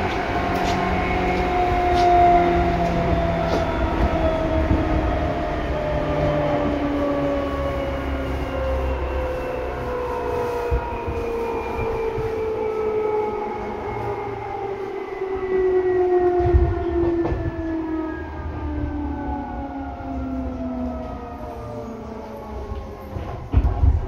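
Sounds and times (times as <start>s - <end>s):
train motors whining: 0.0s - 15.2s
train car rumble: 0.0s - 24.0s.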